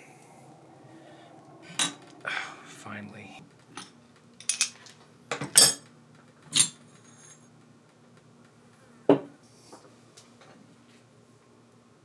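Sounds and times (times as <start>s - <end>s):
metal parts clinking: 3.8s - 4.9s.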